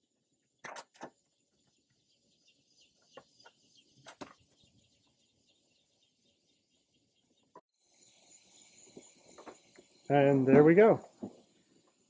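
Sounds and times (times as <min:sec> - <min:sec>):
insects chirring: 0:07.8 - 0:12.0.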